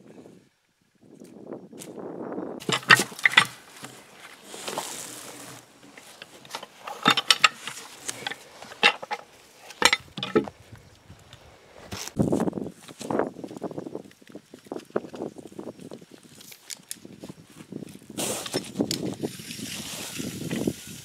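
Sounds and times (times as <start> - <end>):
metal hook knocking logs: 2.6 - 4.0, 6.0 - 10.5
scraping rustle: 2.6 - 10.6.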